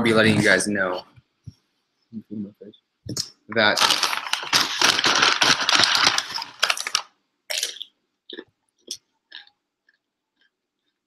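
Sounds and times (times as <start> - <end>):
potato chips crackling while eaten: 3.6 - 10.5.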